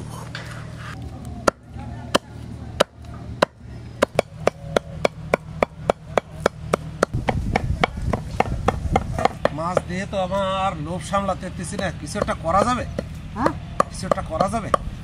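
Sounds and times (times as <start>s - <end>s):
knife chopping on wooden block: 2.8s - 9.9s.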